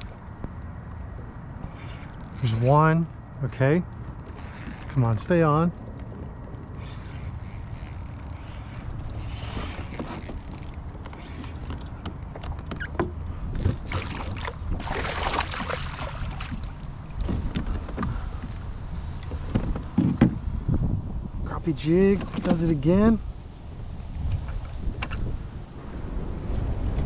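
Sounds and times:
low wind rumble: 0.0s - 27.0s
knocks and clicks against hull: 3.9s - 15.8s, 16.4s - 20.4s, 22.1s - 22.7s, 24.3s - 25.3s.

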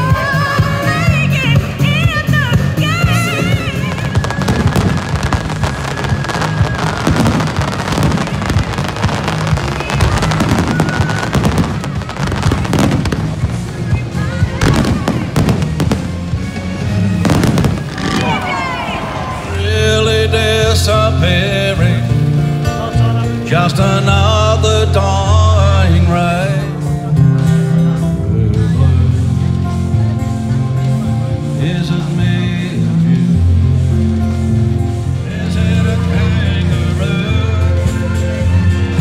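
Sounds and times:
amplified music with singing: 0.0s - 39.0s
fireworks bursting and crackling: 2.6s - 20.0s.

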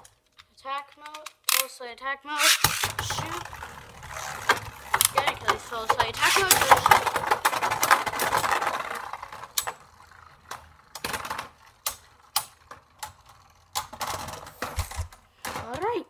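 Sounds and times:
spinning tops whirring: 2.4s - 14.7s
plastic tops clacking: 2.4s - 15.9s.

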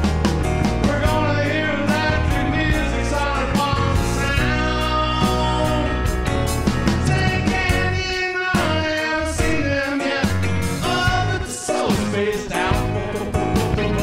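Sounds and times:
bass: 0.0s - 14.0s
drum kit: 0.0s - 14.0s
electric guitar: 0.0s - 14.0s
lead vocal: 0.0s - 14.0s
piano: 0.0s - 14.0s.

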